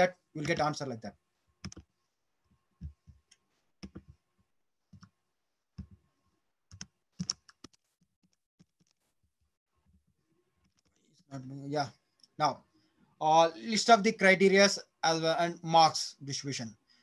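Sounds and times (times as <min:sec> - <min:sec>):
computer keyboard keys clicking: 0:01.6 - 0:01.9, 0:03.8 - 0:04.1, 0:06.7 - 0:07.8.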